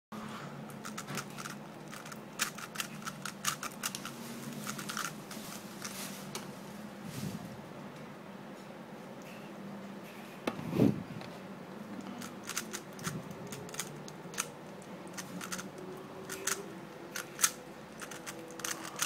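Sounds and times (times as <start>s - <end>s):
speed cube plastic clicks: 0.8s - 4.1s, 12.2s - 14.5s, 15.1s - 15.7s, 16.3s - 16.6s, 17.2s - 19.0s.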